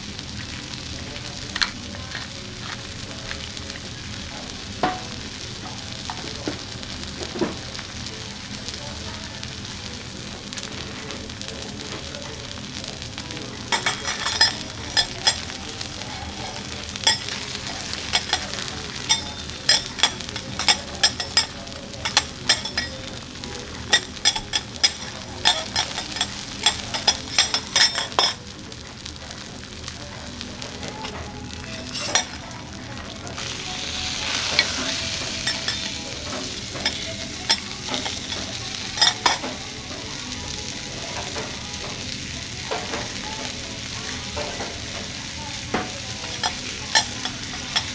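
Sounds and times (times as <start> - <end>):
steak sizzling on griddle: 0.0 - 47.9
metal spatulas scraping hot plate: 16.4 - 22.9, 31.6 - 32.4.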